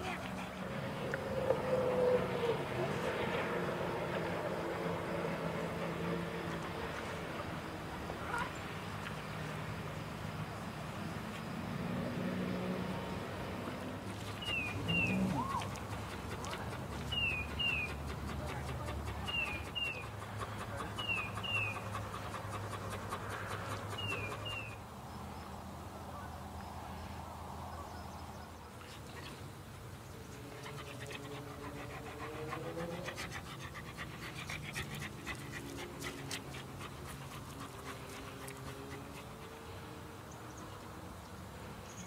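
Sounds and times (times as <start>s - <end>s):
dog panting: 0.0s - 1.6s, 14.0s - 24.8s, 30.3s - 40.1s.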